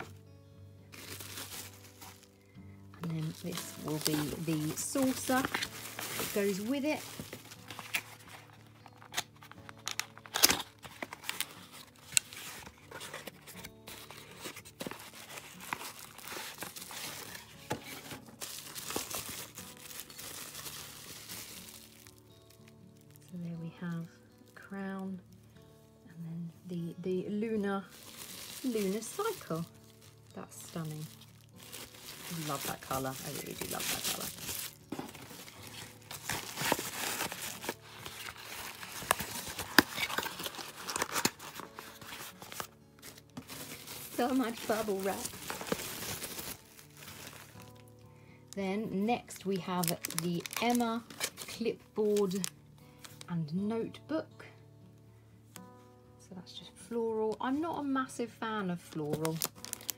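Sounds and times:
bubble wrap crinkling: 0.0 - 0.2, 0.8 - 25.6, 27.5 - 48.0, 49.0 - 53.3, 59.0 - 59.9
cardboard sleeve rustling: 0.9 - 2.4, 3.0 - 23.2, 27.9 - 47.9, 49.8 - 53.2.

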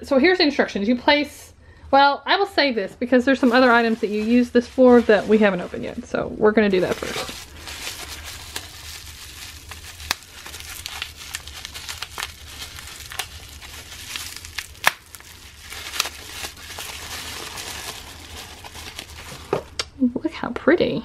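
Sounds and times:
bubble wrap crinkling: 3.3 - 19.8.

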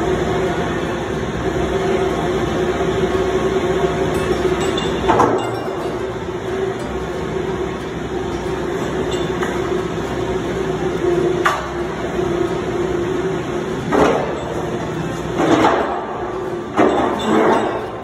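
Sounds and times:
steady mechanical hum: 0.0 - 18.0.

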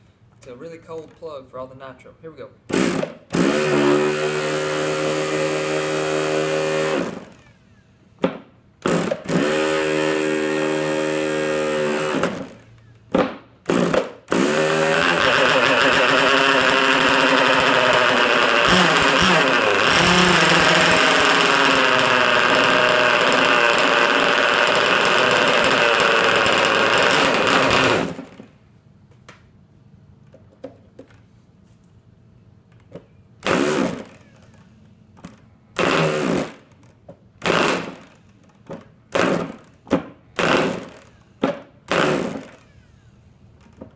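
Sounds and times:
electric starter spinning: 2.7 - 7.8, 8.8 - 12.9, 13.6 - 28.6, 33.4 - 43.7
small two-stroke engine running: 14.3 - 28.5.

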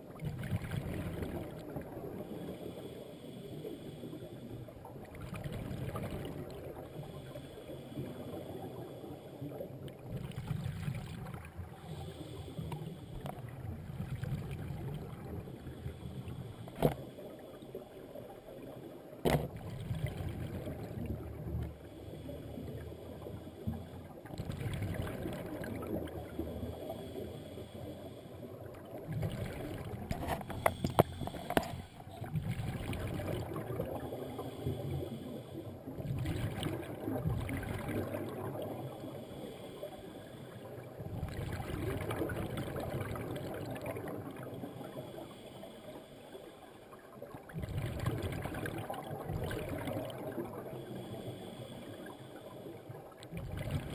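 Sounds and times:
exhaled air bubbling underwater: 0.0 - 53.9
regulator hiss on inhale: 2.1 - 4.9, 6.7 - 10.0, 11.7 - 14.0, 15.2 - 19.0, 21.6 - 24.2, 26.0 - 28.7, 30.0 - 32.3, 33.7 - 37.0, 38.5 - 41.1, 44.2 - 47.0, 50.2 - 53.0.

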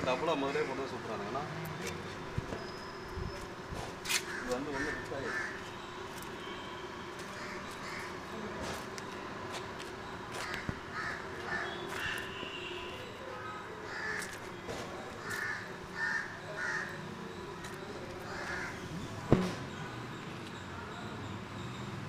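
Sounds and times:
crows cawing: 0.0 - 1.1, 4.0 - 5.8, 7.2 - 8.4, 10.3 - 12.6, 13.8 - 17.2, 18.2 - 18.9.

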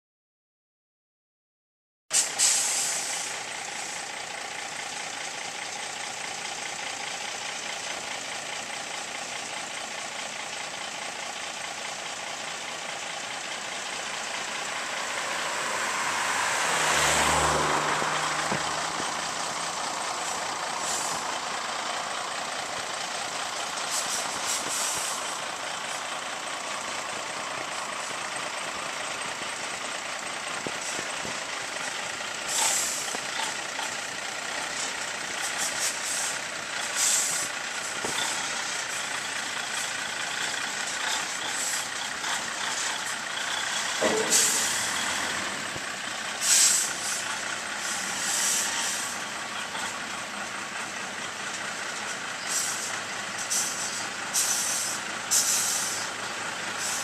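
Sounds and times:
air-brake hisses: 2.1 - 4.1, 20.1 - 21.3, 23.7 - 25.4, 32.5 - 33.6, 34.8 - 39.1, 40.9 - 45.5, 46.3 - 49.2, 52.4 - 57.0
truck engine running: 2.2 - 57.0
car passing: 14.4 - 20.8.

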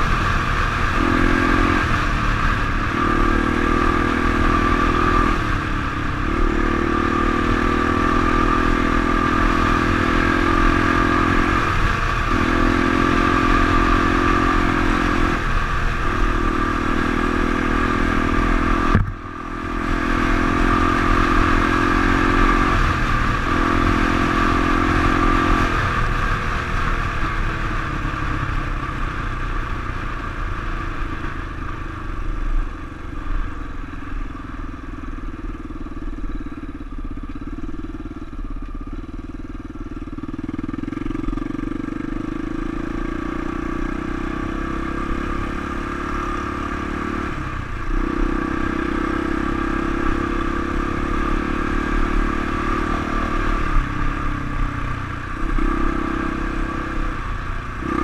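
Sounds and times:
dirt bike engine revving: 0.0 - 26.4, 40.3 - 58.0.

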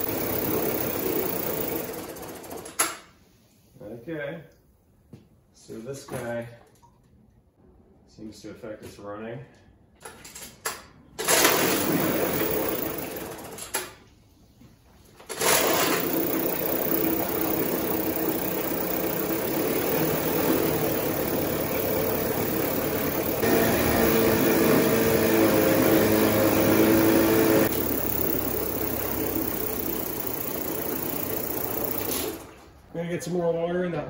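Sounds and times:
outboard motor running: 0.0 - 2.0, 15.5 - 32.4.

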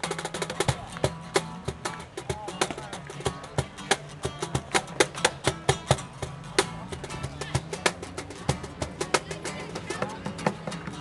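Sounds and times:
acoustic guitar strumming: 0.0 - 11.0
cajon slapped by hand: 0.0 - 11.0.

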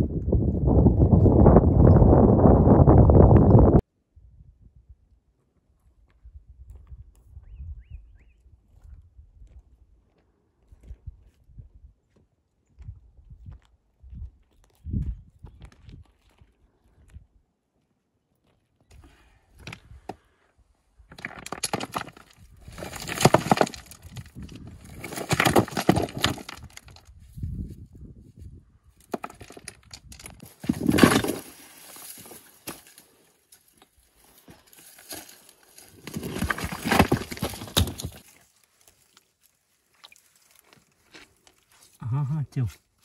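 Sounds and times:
rocks clacking and scraping: 21.0 - 27.8, 28.9 - 42.8.

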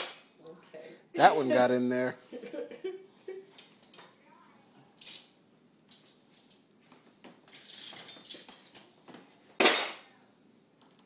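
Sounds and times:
silverware clinking and rattling: 7.4 - 8.9, 9.6 - 10.1
cutlery clattering into drawer: 7.5 - 8.9, 9.6 - 10.0.

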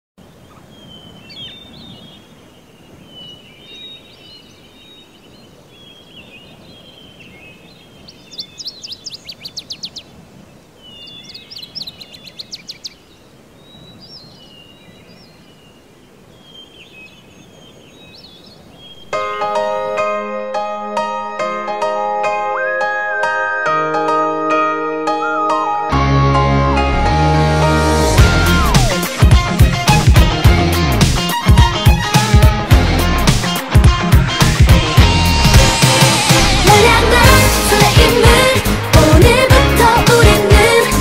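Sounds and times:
songbirds chirping and whistling: 0.2 - 19.9.

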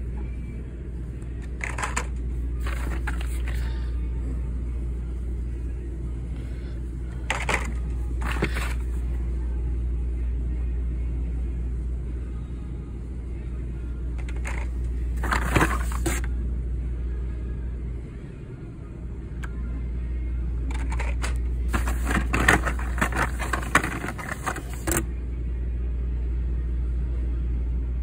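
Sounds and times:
steady low rumble: 0.0 - 24.5
packaging rustling and scraping: 2.6 - 3.7, 7.3 - 8.9, 14.3 - 16.3, 20.7 - 25.0.

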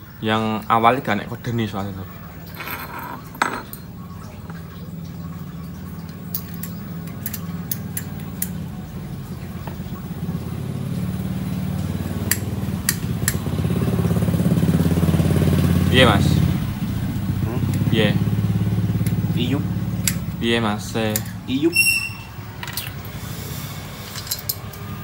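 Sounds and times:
motorcycle engine idling: 6.9 - 20.9.

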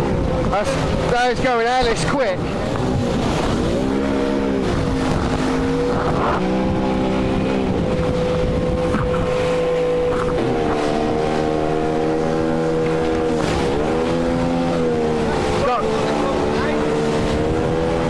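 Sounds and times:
outboard engine at high speed: 0.0 - 18.0
wind: 0.0 - 18.0.

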